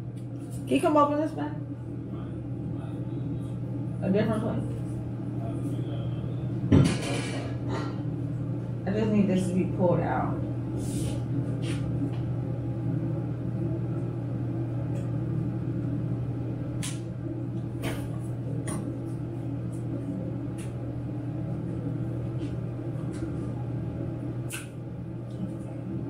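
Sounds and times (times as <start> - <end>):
low mechanical hum: 0.0 - 26.0.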